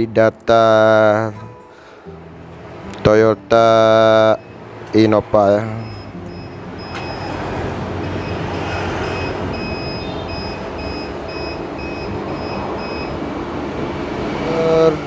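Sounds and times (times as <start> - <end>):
machine beeping high pips: 5.8 - 13.3.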